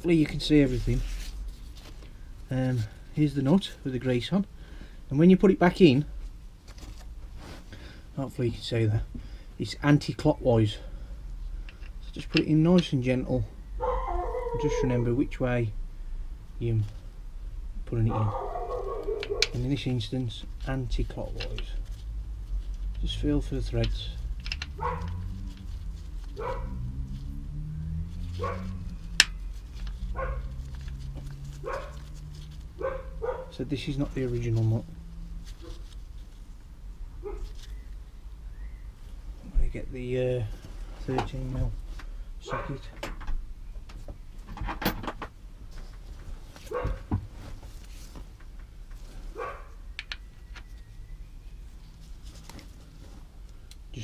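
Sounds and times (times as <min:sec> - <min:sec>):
dog barking: 0:13.8 - 0:14.8, 0:18.1 - 0:19.6, 0:24.8 - 0:25.2, 0:26.4 - 0:26.8, 0:28.4 - 0:28.8, 0:30.1 - 0:30.5, 0:31.6 - 0:32.0, 0:32.8 - 0:33.6, 0:37.2 - 0:37.5, 0:42.5 - 0:42.8, 0:46.7 - 0:47.1, 0:49.4 - 0:49.8
hand tools clicking and knocking: 0:23.0 - 0:25.2.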